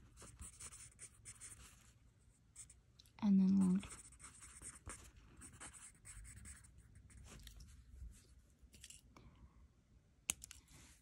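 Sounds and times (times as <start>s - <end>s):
pen scratching on paper: 0.0s - 1.8s, 3.8s - 7.2s.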